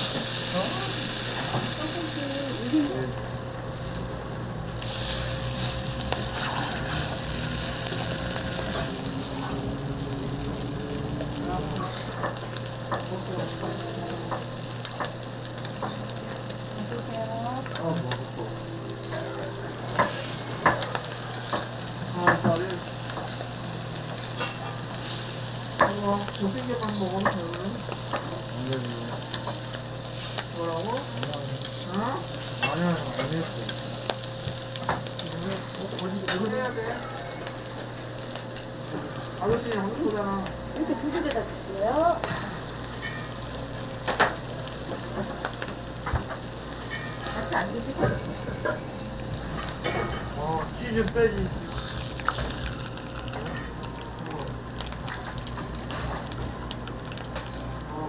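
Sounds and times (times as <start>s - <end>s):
food sizzling on griddle: 0.0s - 58.0s
utensils clicking on griddle: 19.9s - 23.5s, 24.1s - 36.7s, 54.8s - 57.8s.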